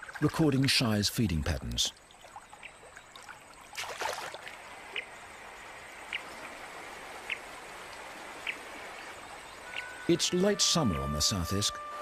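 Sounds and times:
river water rushing: 0:02.2 - 0:11.2.

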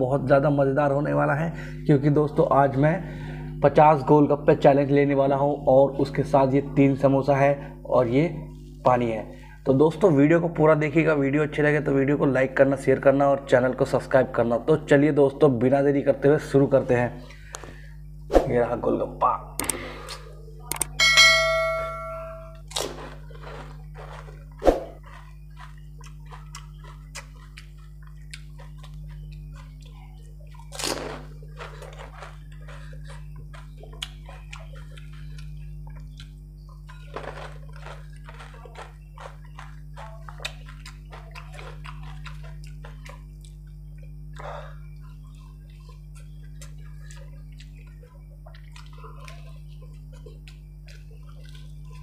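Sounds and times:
steady low hum: 0:00.0 - 0:52.0
crisp shells crunching: 0:37.0 - 0:40.1.

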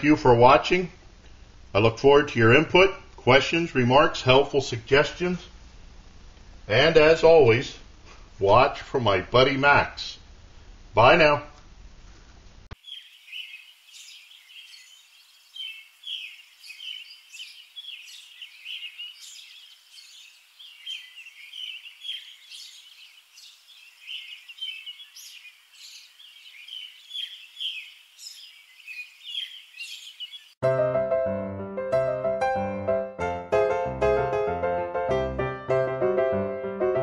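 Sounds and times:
small birds chirping: 0:12.7 - 0:30.6.

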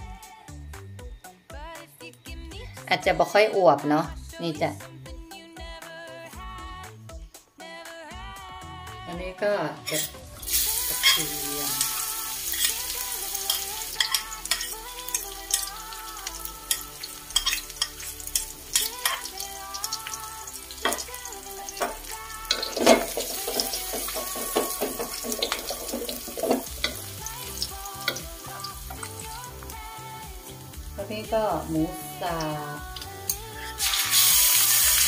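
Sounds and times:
quiet background music: 0:00.0 - 0:35.0
garlic sizzling in oil: 0:09.9 - 0:31.0, 0:32.1 - 0:35.0
spoon and spatula clicks and scrapes: 0:11.0 - 0:11.2, 0:12.5 - 0:12.8, 0:13.4 - 0:15.8, 0:16.6 - 0:20.0, 0:21.8 - 0:27.0.

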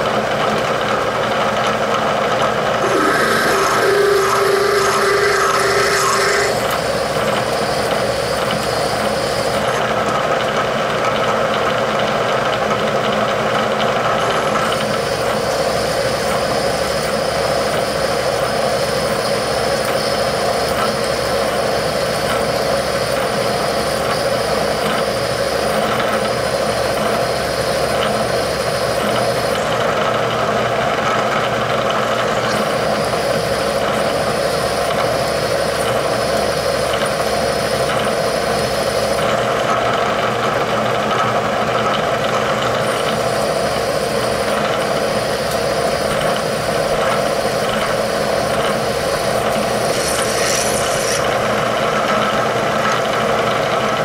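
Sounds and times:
milling machine hum: 0:00.0 - 0:54.0
thin high tone: 0:02.8 - 0:06.8, 0:49.6 - 0:51.5.

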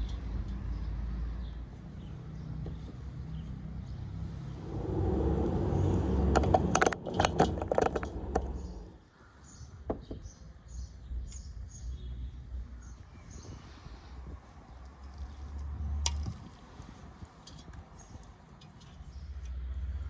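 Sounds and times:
small birds chirping: 0:00.0 - 0:04.6, 0:07.8 - 0:15.6, 0:16.4 - 0:20.0
camera handling rumble: 0:06.3 - 0:08.8
clicks and knocks: 0:06.3 - 0:08.9.

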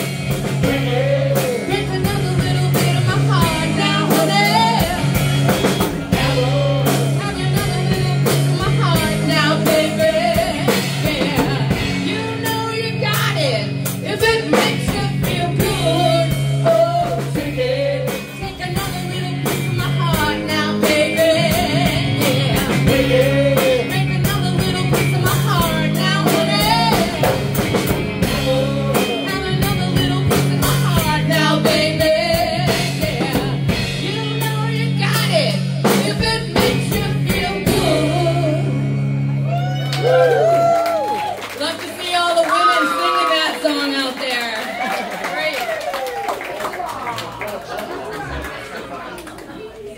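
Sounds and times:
person singing lead vocal: 0:00.0 - 0:38.9
electric bass: 0:00.0 - 0:41.7
drum kit: 0:00.0 - 0:43.0
electric guitars: 0:00.0 - 0:46.4.

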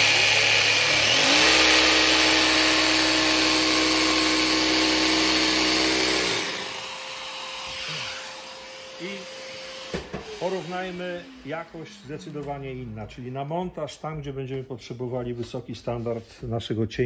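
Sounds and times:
dust extractor running: 0:00.0 - 0:12.5
jigsaw cutting board: 0:00.0 - 0:12.5.

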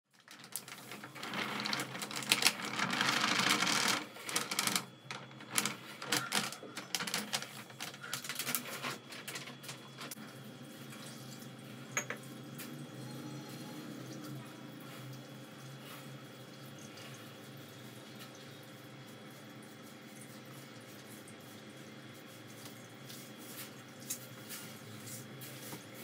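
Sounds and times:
packet crinkling: 0:00.2 - 0:10.2.

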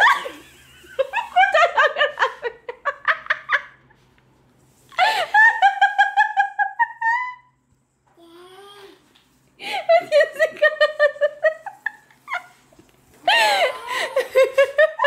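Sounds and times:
woman laughing: 0:05.0 - 0:07.5, 0:09.6 - 0:12.6, 0:13.2 - 0:15.0.

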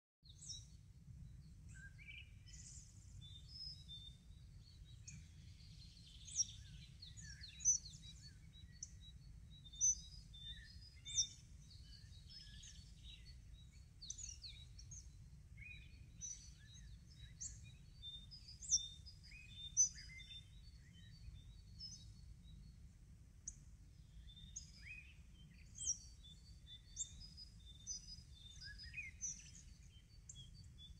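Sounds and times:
small birds chirping: 0:00.3 - 0:30.9.

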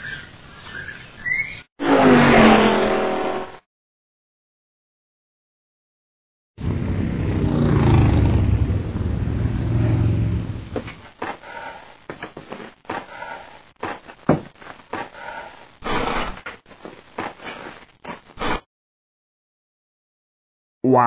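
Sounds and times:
quad bike engine running: 0:06.6 - 0:10.7.

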